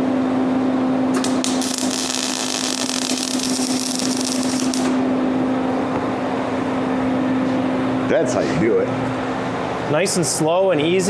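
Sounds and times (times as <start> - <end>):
welding arc crackling hiss: 1.1 - 5.0.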